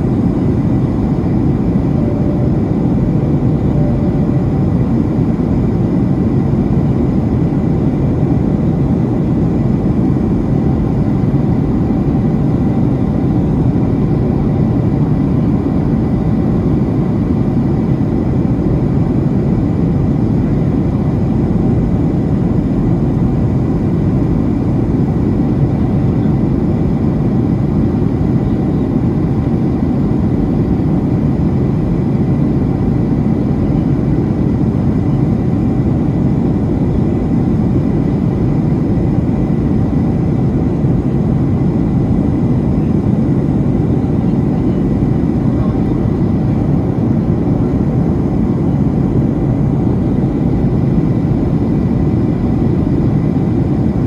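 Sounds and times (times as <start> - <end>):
airplane cabin rumble: 0.0 - 54.0
faint high tone: 1.8 - 4.8.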